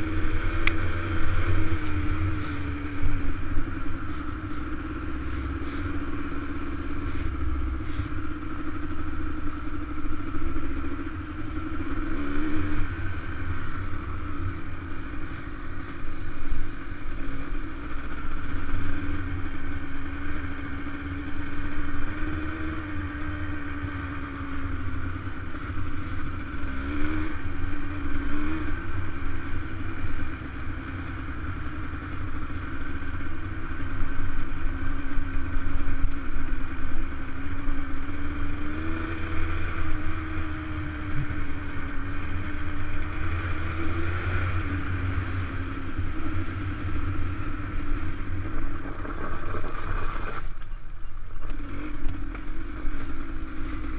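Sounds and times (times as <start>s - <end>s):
dirt bike engine running: 0.0s - 53.9s.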